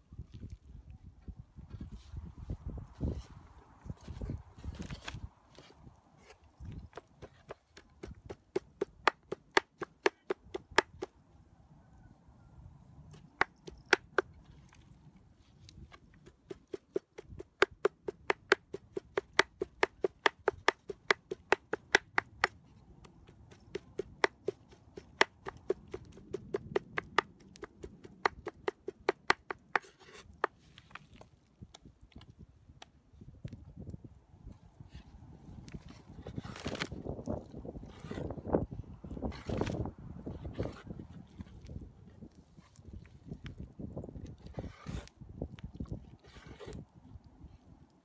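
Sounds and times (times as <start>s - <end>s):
cleaver chopping on wooden board: 7.0s - 11.1s, 13.4s - 14.3s, 16.2s - 22.6s.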